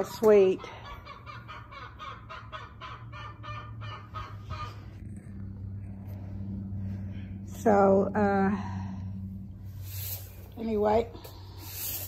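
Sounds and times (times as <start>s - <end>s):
low steady hum: 0.0s - 12.0s
poultry calling: 0.5s - 7.3s.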